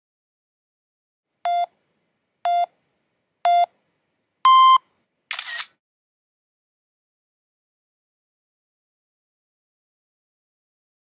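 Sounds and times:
short electronic beeps: 0:04.5 - 0:05.6
camera shutter: 0:05.3 - 0:05.8.

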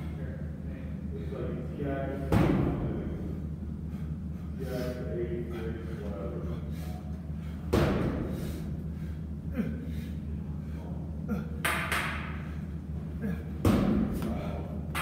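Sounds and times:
steady low hum: 0:00.0 - 0:15.0
man breathing hard: 0:03.1 - 0:11.6, 0:12.4 - 0:14.9.

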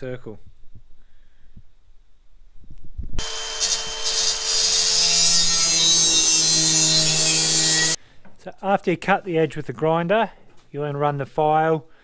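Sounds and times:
angle grinder cutting steel: 0:03.2 - 0:08.0.

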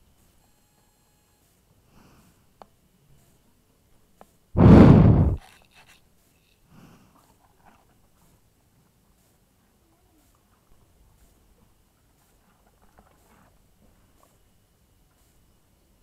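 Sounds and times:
faint clicks and rustles: 0:05.4 - 0:15.6.

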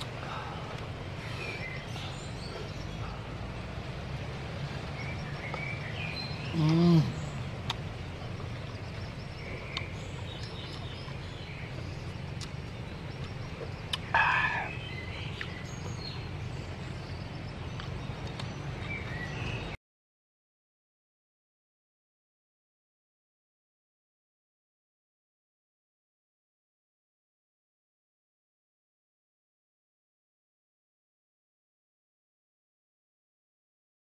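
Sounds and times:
small birds chirping: 0:00.0 - 0:19.8
steady low hum: 0:00.0 - 0:19.8.

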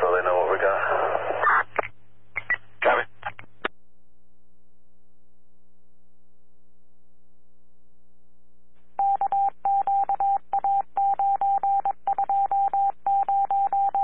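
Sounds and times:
radio scanner hum: 0:00.0 - 0:03.7
morse code beeps: 0:09.0 - 0:14.0.

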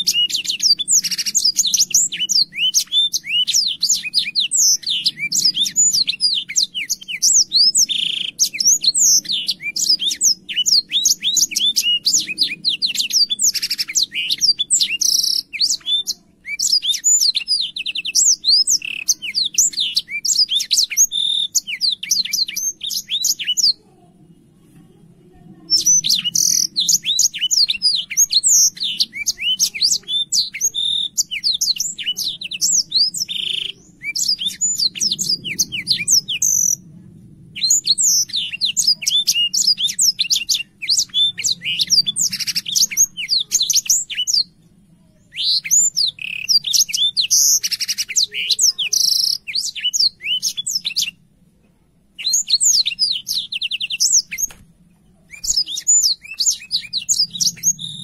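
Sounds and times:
canary singing: 0:00.0 - 0:23.9, 0:25.5 - 0:36.9, 0:37.5 - 0:51.3, 0:52.2 - 0:58.0
faint low hum: 0:31.8 - 0:43.2.

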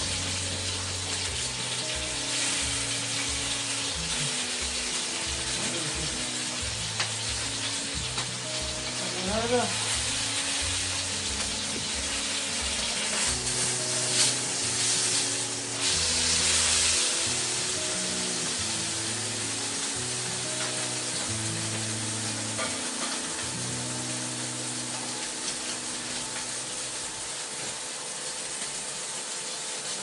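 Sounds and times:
background music: 0:00.0 - 0:29.2
meat sizzling in a wok: 0:00.0 - 0:30.0.

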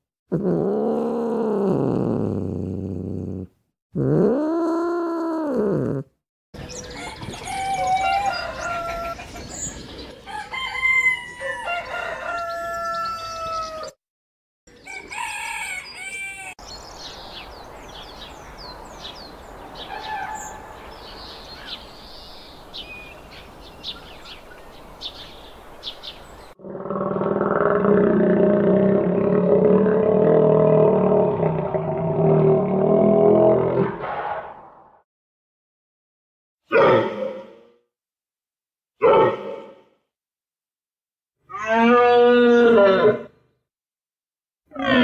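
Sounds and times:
small birds chirping: 0:06.6 - 0:10.3, 0:15.9 - 0:26.6
roosters crowing: 0:06.8 - 0:09.2, 0:10.2 - 0:14.0, 0:14.8 - 0:16.6.

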